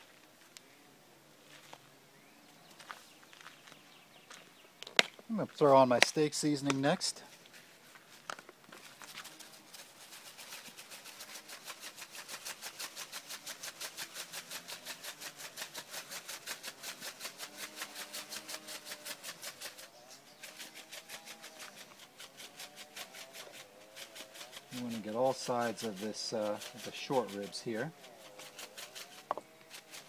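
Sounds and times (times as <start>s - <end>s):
seasoning rattling in shaker jar: 8.9s - 19.8s, 21.8s - 30.0s.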